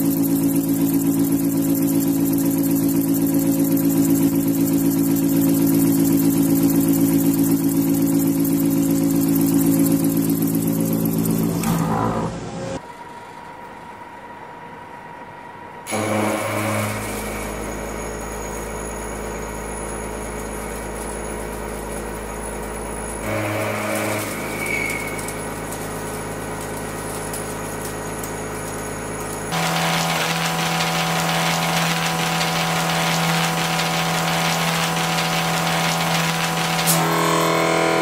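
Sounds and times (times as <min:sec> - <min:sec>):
milling machine cutting steel: 0:00.0 - 0:12.3, 0:15.9 - 0:38.0.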